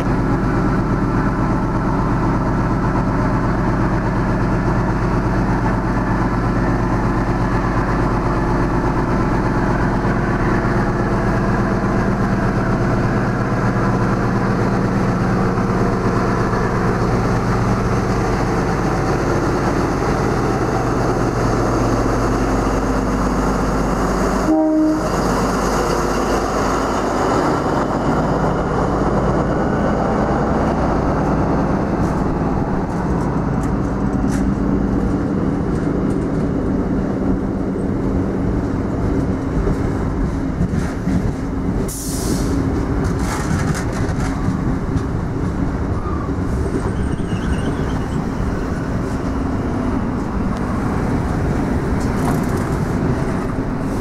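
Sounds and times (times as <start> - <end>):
carriages rumbling over rails: 0.0 - 54.0
diesel locomotive engine: 0.0 - 54.0
brief pitched tone: 46.9 - 48.5.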